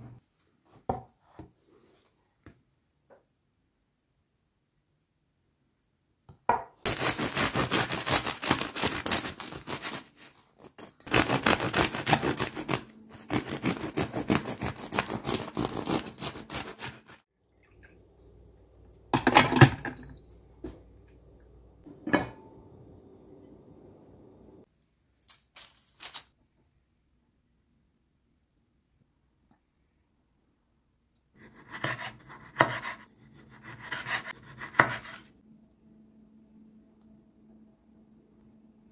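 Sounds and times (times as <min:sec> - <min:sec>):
knife sawing through bread crust: 0:06.9 - 0:17.2, 0:31.4 - 0:35.3.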